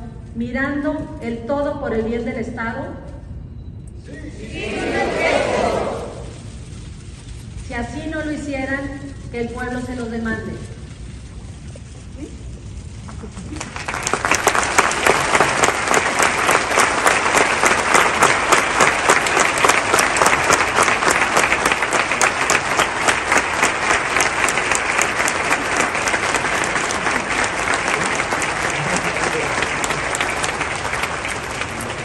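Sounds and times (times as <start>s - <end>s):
crowd applauding: 13.4s - 32.0s.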